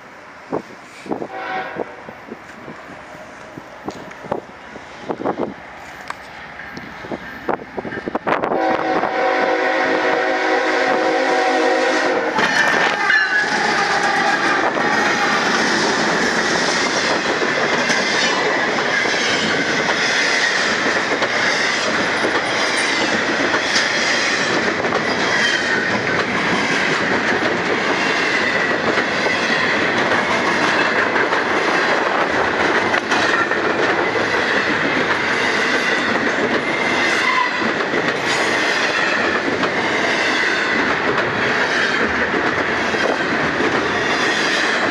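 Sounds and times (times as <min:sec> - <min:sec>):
freight train passing: 0:00.0 - 0:44.9
wheels clacking over rail joints: 0:12.3 - 0:44.9.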